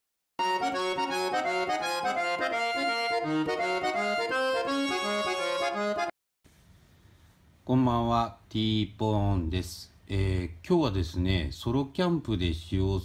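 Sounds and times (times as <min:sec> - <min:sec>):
music jingle: 0:00.4 - 0:06.1.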